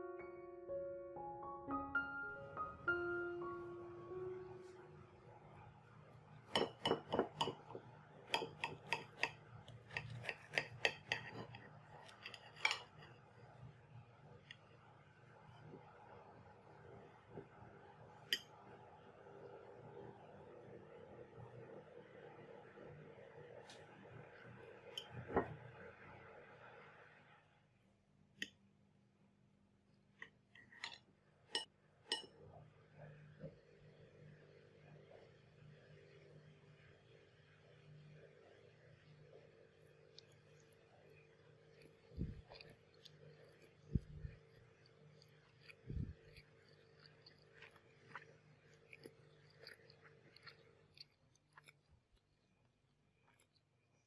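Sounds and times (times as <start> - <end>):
knife and fork clicking on plate: 8.3 - 13.0.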